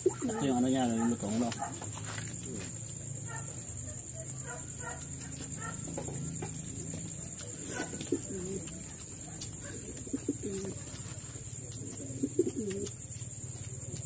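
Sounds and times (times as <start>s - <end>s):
bird calling: 7.4s - 13.0s.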